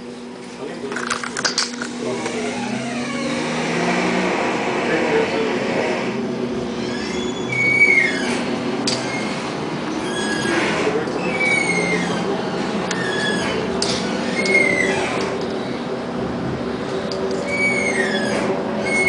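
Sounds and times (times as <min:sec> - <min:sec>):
tram wheels and motor rumbling: 0:00.0 - 0:19.0
wheels squealing on rails: 0:10.0 - 0:12.3, 0:12.9 - 0:15.3, 0:17.4 - 0:19.0.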